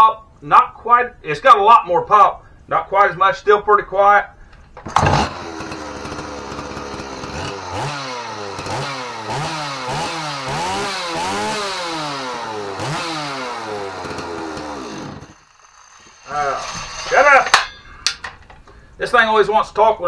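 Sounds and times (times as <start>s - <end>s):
chainsaw idling and revving: 4.9s - 17.1s.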